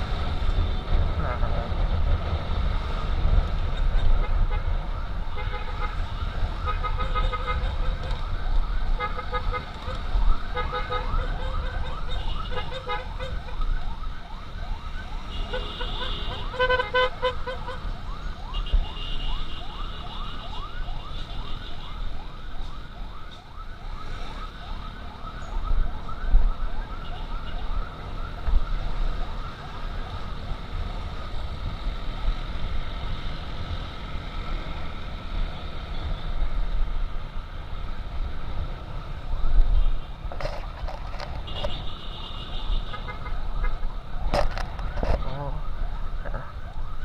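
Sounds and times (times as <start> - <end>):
motorcycle: 0.0 - 41.9
emergency siren yelping: 5.9 - 35.1, 42.8 - 47.0.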